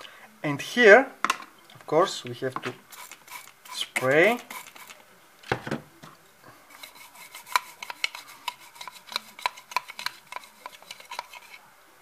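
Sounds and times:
toothbrush scrubbing plastic: 2.9 - 5.0, 6.7 - 11.6
small scrapes and clicks: 2.9 - 5.1, 6.7 - 11.6.

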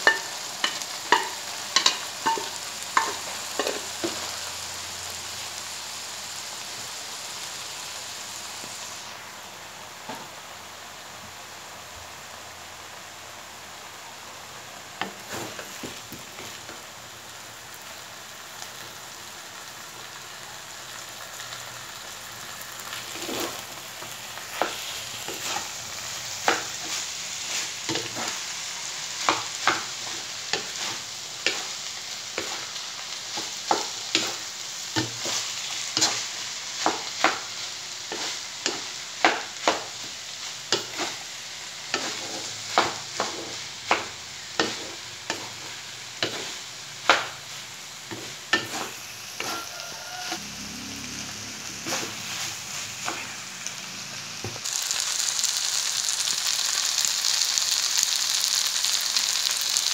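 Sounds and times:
rice sizzling in a wok: 0.0 - 59.9
wooden spatula scraping a wok: 15.0 - 16.9, 22.8 - 50.5, 51.6 - 53.5.

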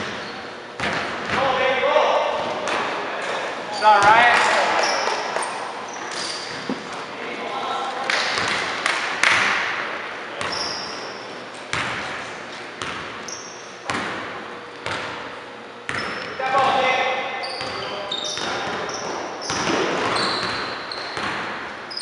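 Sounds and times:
sneaker squeaks: 0.0 - 1.4, 2.4 - 7.1, 10.4 - 14.0, 15.8 - 22.0
players' voices: 1.3 - 8.5.

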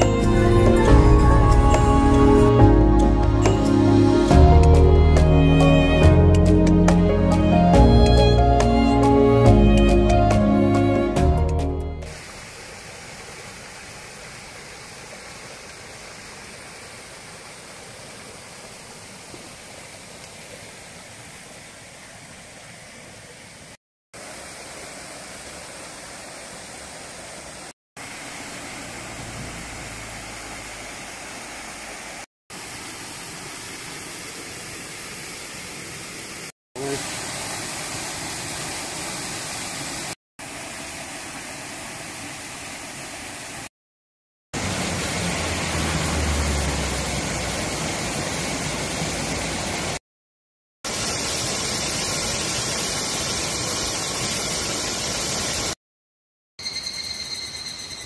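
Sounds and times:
stream splashing over rocks: 12.1 - 43.7, 44.6 - 50.0, 50.8 - 55.8.

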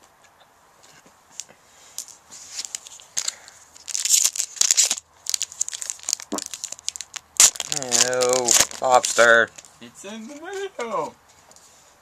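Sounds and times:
foil wrapper crinkling and tearing: 1.4 - 9.7.

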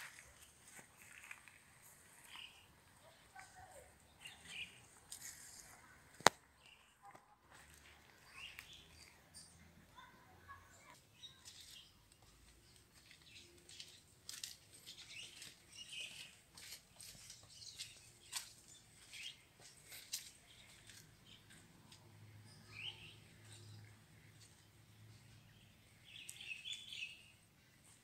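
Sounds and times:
footsteps on concrete: 0.0 - 2.6, 11.2 - 22.0
faint birds chirping: 0.0 - 28.0.

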